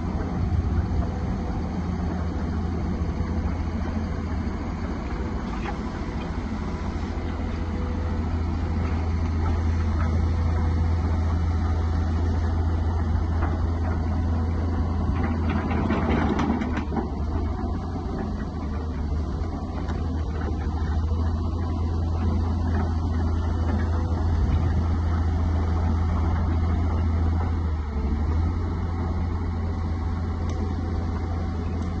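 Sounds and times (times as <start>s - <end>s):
excavator diesel engine idling: 0.0s - 32.0s.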